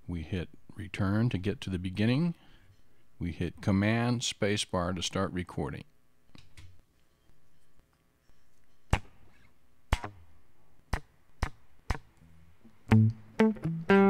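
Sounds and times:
faint guitar amp hum: 0:08.4 - 0:14.0
electric guitar playing: 0:12.2 - 0:14.0.

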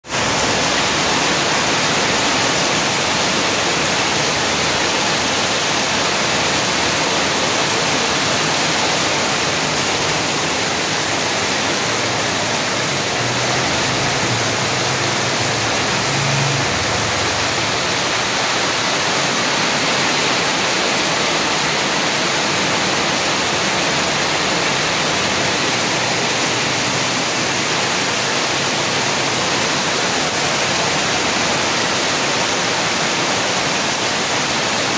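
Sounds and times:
heavy rain pouring on street: 0:00.0 - 0:34.9
passing vehicle engine hum: 0:12.0 - 0:18.8.

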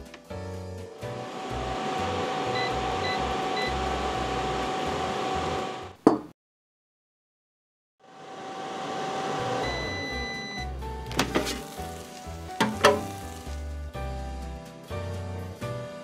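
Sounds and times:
air fryer fan whirring: 0:01.0 - 0:05.9, 0:08.1 - 0:10.6, 0:11.2 - 0:13.5
short beeps: 0:09.6 - 0:10.7.

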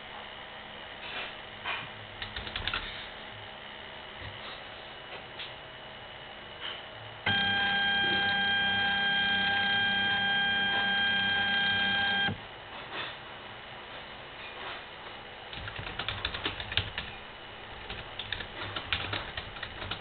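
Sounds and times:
steady beep: 0:07.3 - 0:12.4.

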